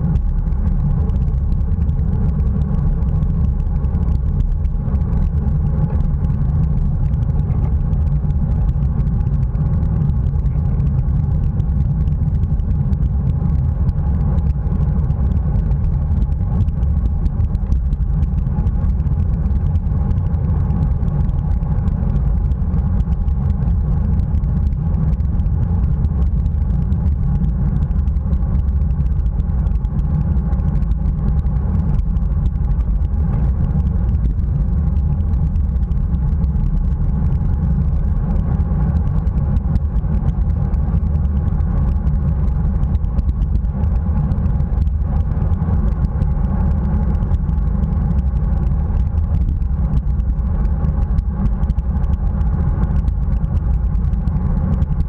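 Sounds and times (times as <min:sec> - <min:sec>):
bicycle road noise: 0:00.0 - 0:55.0
wind rumble: 0:00.0 - 0:55.0.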